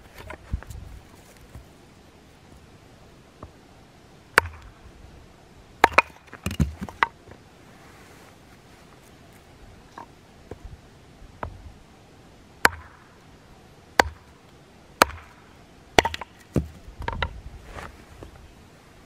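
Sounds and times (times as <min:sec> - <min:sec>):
axe chopping wood: 0:04.4 - 0:04.7, 0:05.8 - 0:07.1, 0:12.6 - 0:13.0, 0:14.0 - 0:14.3, 0:15.0 - 0:15.4, 0:16.0 - 0:17.3.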